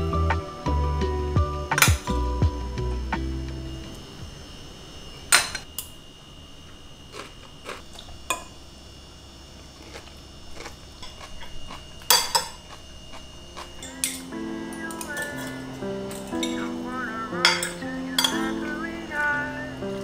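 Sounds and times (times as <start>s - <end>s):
cutlery clinking on plates: 12.1s - 12.6s, 17.4s - 18.5s.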